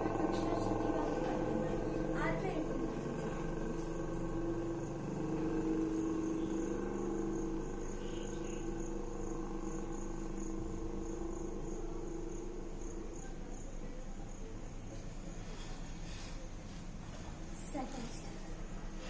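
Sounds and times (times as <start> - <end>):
high-pitched pulsing chirping: 0.0 - 14.5
steady hum: 0.0 - 19.0.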